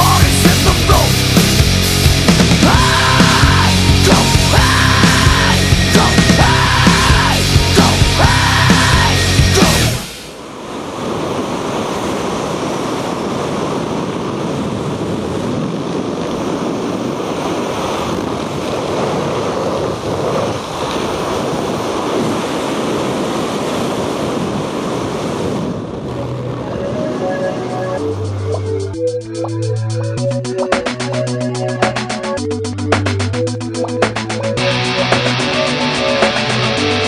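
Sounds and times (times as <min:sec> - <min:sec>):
wind buffeting microphone: 0:10.0 - 0:29.0.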